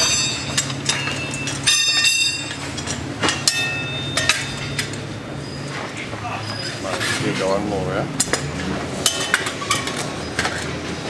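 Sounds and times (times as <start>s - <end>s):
ringing metallic clank: 0.0s - 5.6s
metal tyre levers clinking on rim: 0.0s - 7.2s, 8.2s - 11.0s
steady low hum: 0.0s - 11.0s.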